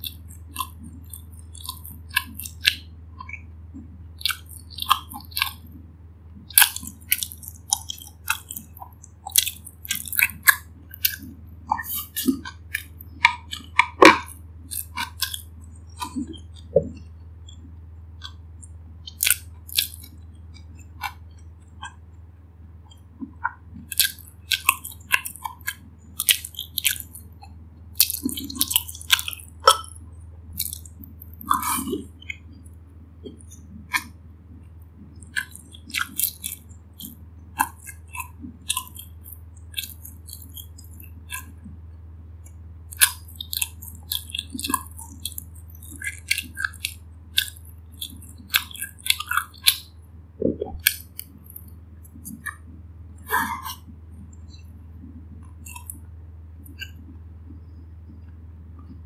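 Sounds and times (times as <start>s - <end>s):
wet mouth clicks and smacks: 0.0s - 5.6s, 6.5s - 22.1s, 22.9s - 34.2s, 35.1s - 41.8s, 42.4s - 59.0s
chewing crunchy food: 0.0s - 22.2s, 22.8s - 59.0s
steady low hum: 0.0s - 59.0s.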